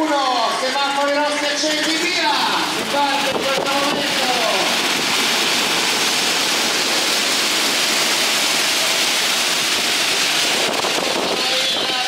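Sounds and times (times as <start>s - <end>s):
heavy rain pouring: 0.5s - 12.0s.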